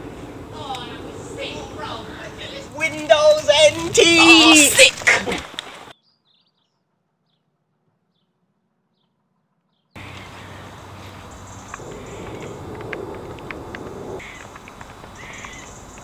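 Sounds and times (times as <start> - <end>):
faint birdsong: 0.0 - 3.9, 5.4 - 16.0
young men laughing and whooping: 3.7 - 5.6.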